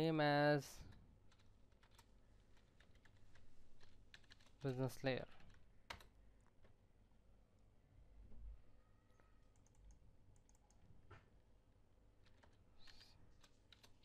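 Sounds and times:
keyboard typing: 1.3 - 6.5, 9.1 - 10.8, 12.2 - 14.0.

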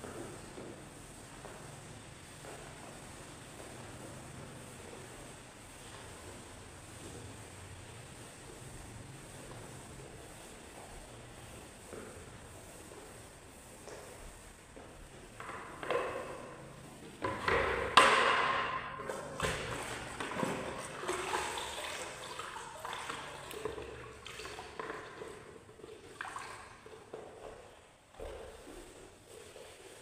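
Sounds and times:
mop sloshing in bucket of water: 0.1 - 30.0.

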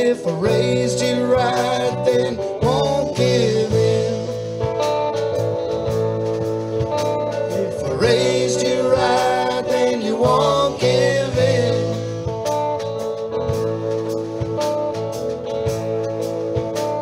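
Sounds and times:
person singing: 0.0 - 4.5, 7.5 - 12.2
country song with guitar: 0.0 - 17.0.

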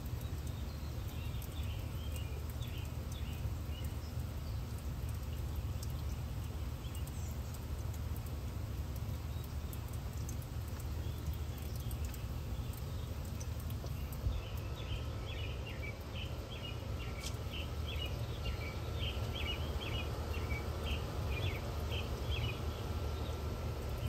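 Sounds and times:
fountain splashing: 0.0 - 24.0
small birds chirping: 0.0 - 24.0
low wind rumble: 13.1 - 24.0.

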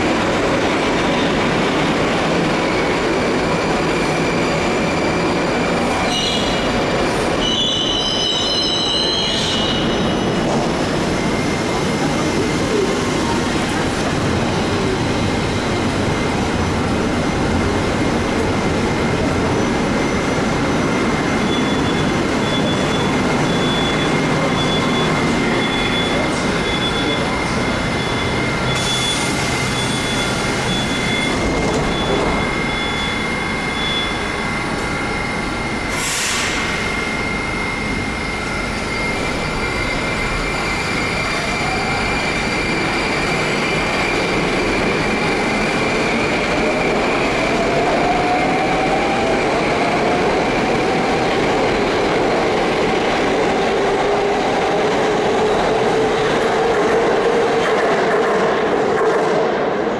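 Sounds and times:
electric train high whine: 0.0 - 57.2
faint beep: 21.4 - 34.4
short air hiss: 35.9 - 36.7.

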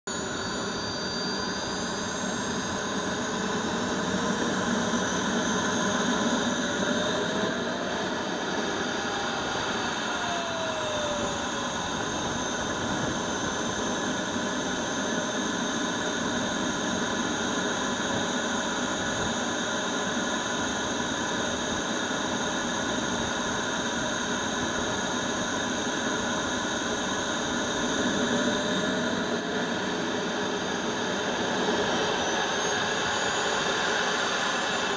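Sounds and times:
model jet engine whining: 0.1 - 34.9.

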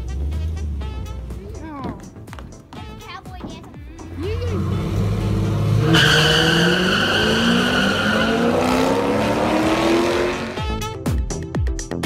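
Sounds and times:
drag car accelerating: 4.0 - 10.8.

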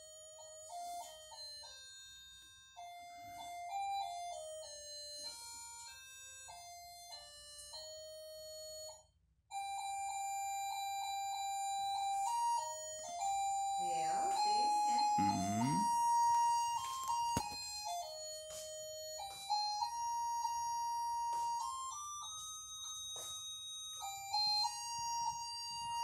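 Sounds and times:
simple electronic beeping melody: 9.7 - 26.0.

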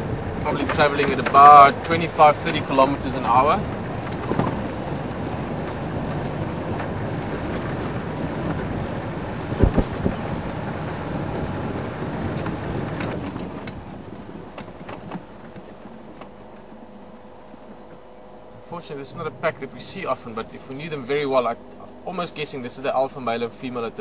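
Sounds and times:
wind buffeting microphone: 0.0 - 15.8
road rumble: 0.0 - 24.0
vehicle engine: 0.0 - 24.0.

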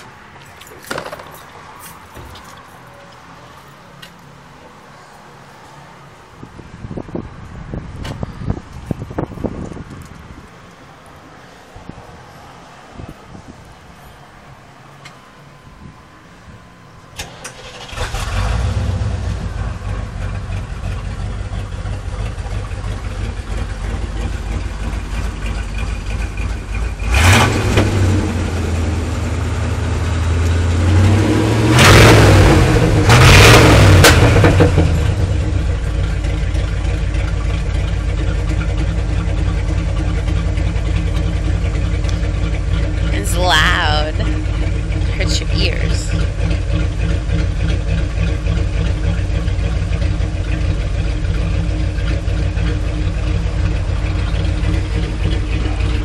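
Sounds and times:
car engine starting: 16.5 - 56.0
engine revving: 17.2 - 37.2
engine idling: 17.3 - 30.7, 34.0 - 56.0.

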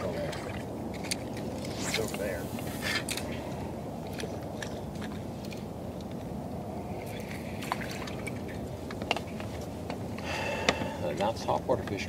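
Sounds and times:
water lapping against boat hull: 0.0 - 3.4, 7.0 - 8.8
light clicks and taps: 11.8 - 12.0.

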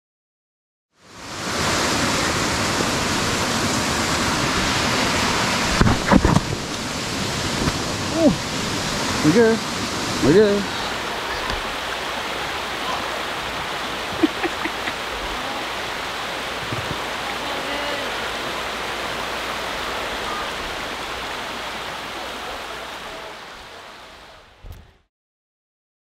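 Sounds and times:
river rushing over rapids: 1.0 - 24.6.

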